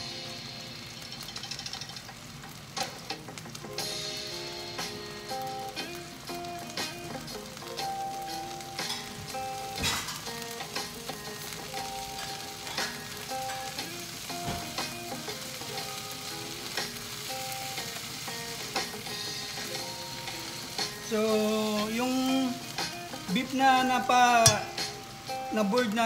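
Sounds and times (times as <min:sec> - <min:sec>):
beef sizzling in skillet: 0:00.0 - 0:26.0
utensils clinking: 0:01.0 - 0:02.2, 0:08.8 - 0:10.4, 0:24.3 - 0:25.0
melodic background music: 0:02.8 - 0:26.0.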